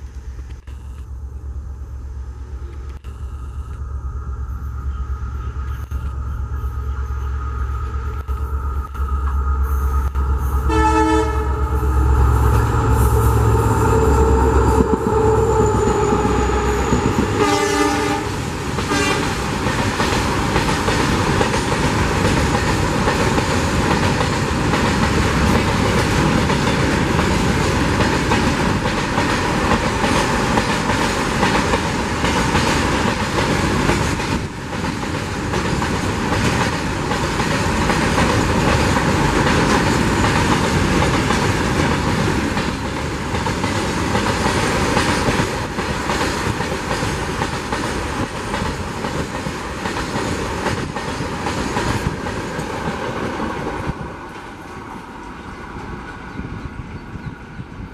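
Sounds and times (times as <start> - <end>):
diesel locomotive passing: 0.0 - 57.9
freight train wagons rolling: 2.4 - 56.3
train horn: 4.4 - 19.4.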